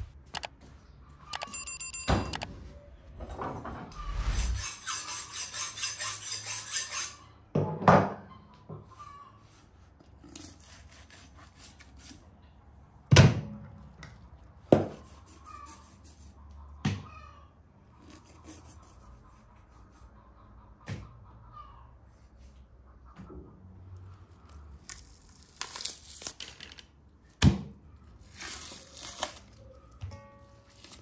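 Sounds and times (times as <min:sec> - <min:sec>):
knife sharpening steel on steel: 0:04.0 - 0:07.2.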